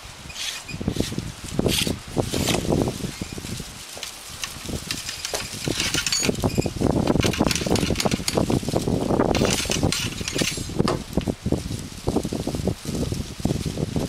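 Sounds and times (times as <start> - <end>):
ramrod clicking and scraping in barrel: 0.3 - 2.6, 4.4 - 8.5, 9.3 - 10.7.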